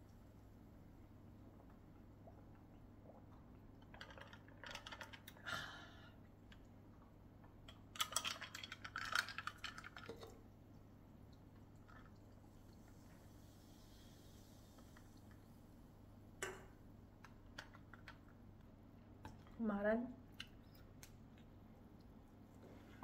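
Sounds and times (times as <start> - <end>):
soda crackling and gulps: 1.2 - 5.5, 6.1 - 15.8.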